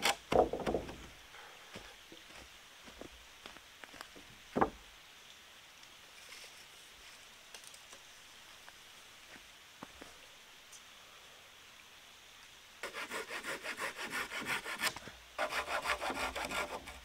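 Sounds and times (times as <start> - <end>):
board knocking on wooden frame: 0.3 - 1.0.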